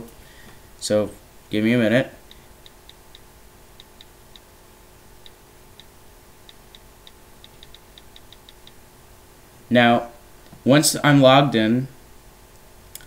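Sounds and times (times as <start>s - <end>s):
on-screen keyboard clicks: 2.6s - 4.5s, 5.2s - 8.8s.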